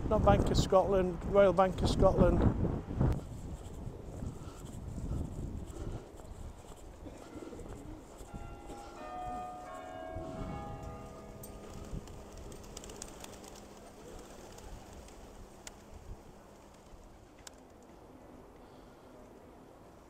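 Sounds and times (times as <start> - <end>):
church bell ringing: 8.2 - 14.4.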